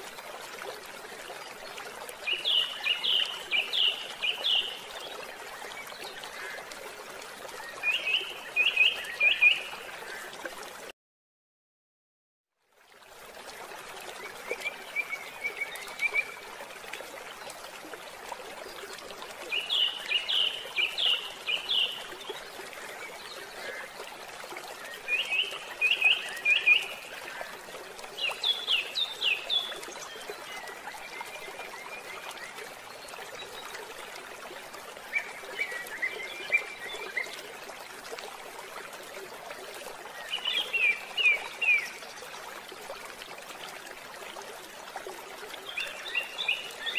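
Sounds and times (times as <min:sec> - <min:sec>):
water trickling: 0:00.0 - 0:10.9, 0:12.6 - 0:46.9.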